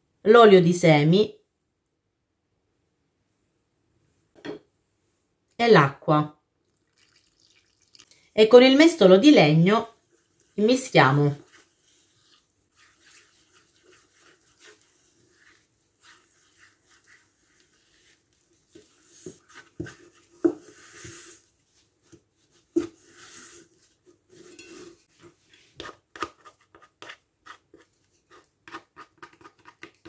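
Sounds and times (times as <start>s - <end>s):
wooden spoon scraping metal bowl: 9.4s - 30.0s.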